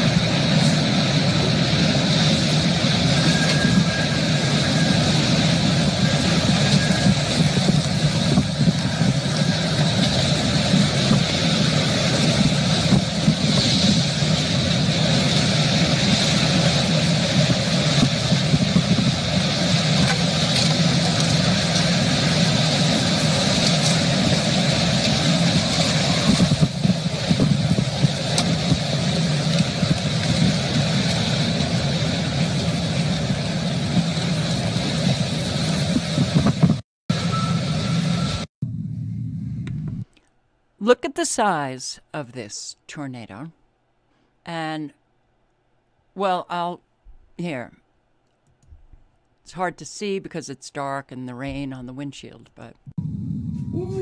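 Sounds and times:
low rumble: 0.0 - 40.0, 53.0 - 54.0
tornado wind rushing: 0.0 - 40.0, 53.0 - 54.0.

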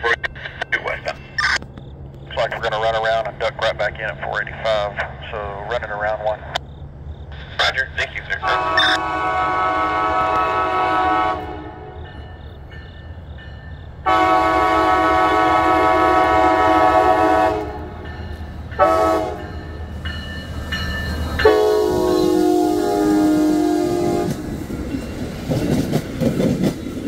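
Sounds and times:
train low rumble: 0.0 - 27.0
locomotive air horn blasts: 8.4 - 12.0, 14.0 - 18.0, 18.8 - 19.6, 21.4 - 24.4.

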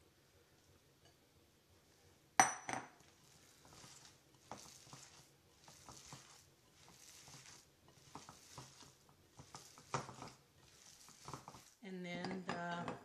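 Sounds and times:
glass bowls knocking: 2.4 - 2.9
filling squishing: 3.1 - 11.8.

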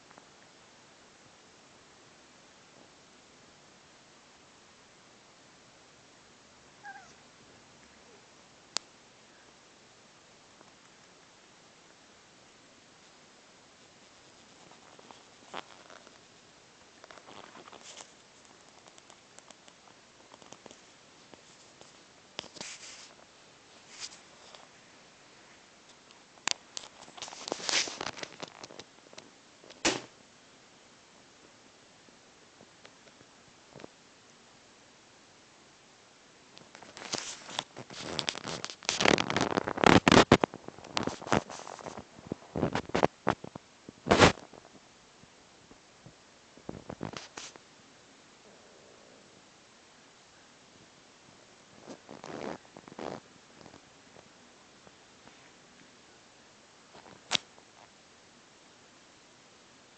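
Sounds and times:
cat rustling on bedding: 21.2 - 24.5.

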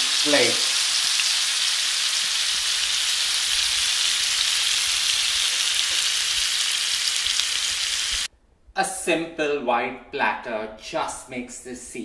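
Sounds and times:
fish sizzling in oil: 0.0 - 8.3.

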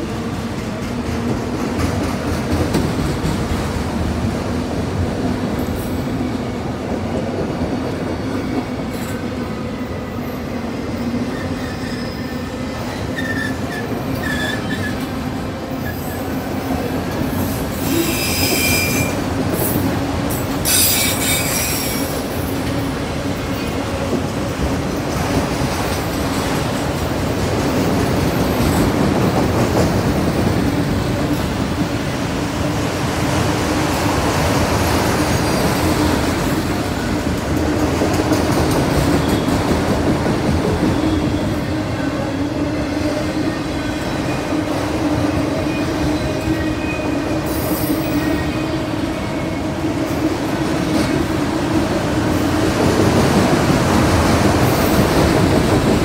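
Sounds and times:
freight train wheels rumbling: 0.0 - 56.0
high-pitched wheel squeals: 11.3 - 15.1, 17.8 - 19.2, 20.6 - 22.2.

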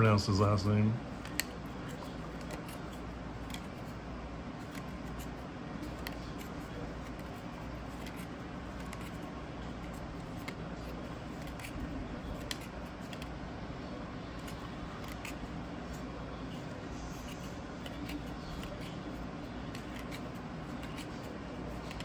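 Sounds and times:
low background hum: 0.0 - 22.0
cards sliding: 1.0 - 13.4, 14.2 - 22.0
card edge clicks: 1.2 - 4.0, 4.6 - 13.4, 14.4 - 15.5, 17.2 - 22.0.

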